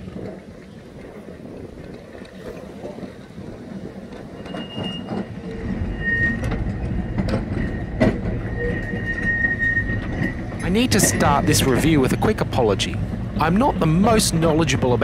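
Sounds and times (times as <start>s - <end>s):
tram rumble: 0.0s - 15.0s
wheel squeal: 3.8s - 12.4s.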